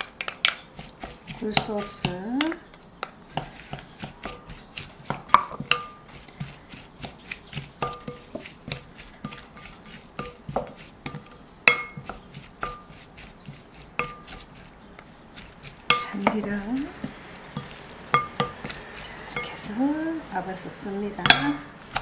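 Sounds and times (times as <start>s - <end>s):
spoon knocking glass bowl: 5.3s - 6.0s, 10.2s - 12.9s, 14.0s - 14.4s, 17.6s - 19.7s, 21.2s - 21.7s
glass bowl ringing: 21.2s - 21.7s.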